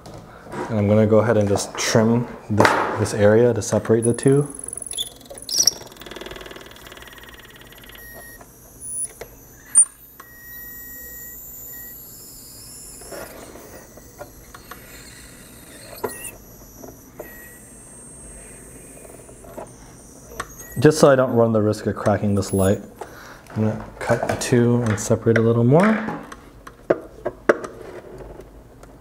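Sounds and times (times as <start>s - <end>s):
sharp clicks: 3.8s - 23.2s
rotary tool whining: 3.8s - 23.3s.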